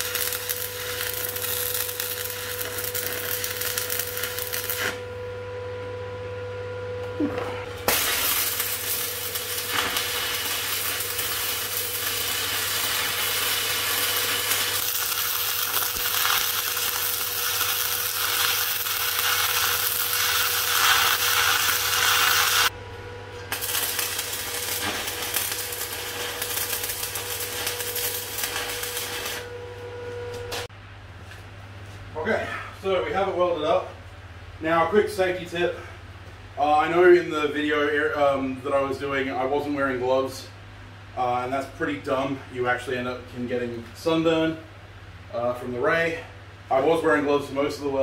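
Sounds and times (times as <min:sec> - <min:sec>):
welding arc crackling: 0:00.0 - 0:05.1, 0:07.8 - 0:30.7
steady low hum: 0:00.0 - 0:48.0.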